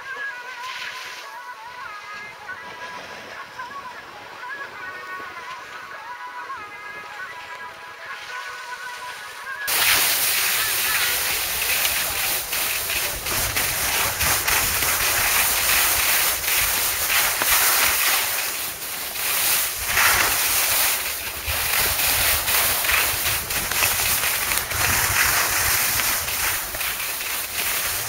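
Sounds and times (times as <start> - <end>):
skis scraping over snow: 8.1 - 28.0
wind buffeting microphone: 10.6 - 28.0.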